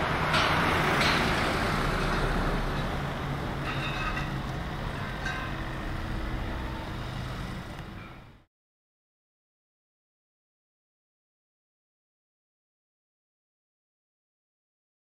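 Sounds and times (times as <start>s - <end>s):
truck engines humming: 0.0s - 8.5s.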